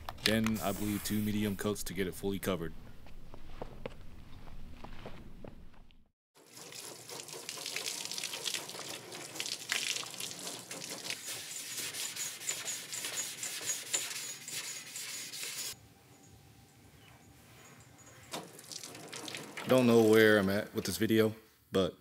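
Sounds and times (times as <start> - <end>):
hose water splashing on car hood: 6.4 - 11.7, 18.3 - 20.4.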